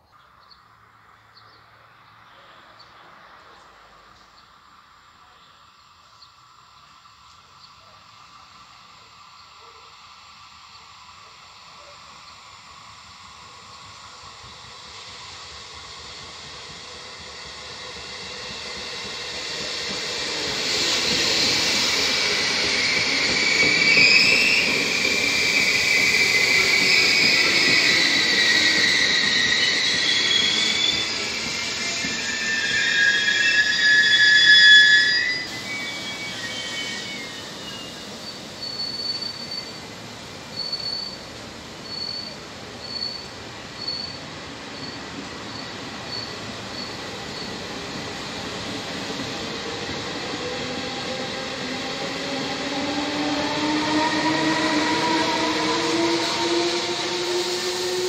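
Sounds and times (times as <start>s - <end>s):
train wheels rumbling: 6.6s - 58.0s
train brakes squealing: 11.6s - 58.0s.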